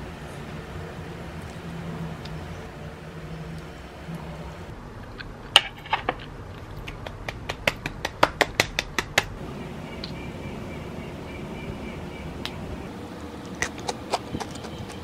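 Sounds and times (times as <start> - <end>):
hands clapping: 6.8 - 9.3.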